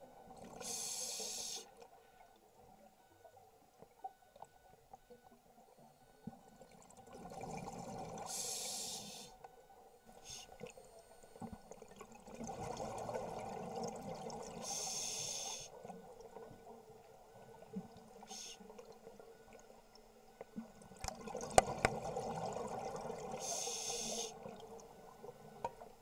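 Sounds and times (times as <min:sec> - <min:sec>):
regulator hiss: 0:00.6 - 0:01.7, 0:08.3 - 0:09.3, 0:14.6 - 0:15.7, 0:18.3 - 0:18.6, 0:23.4 - 0:24.4.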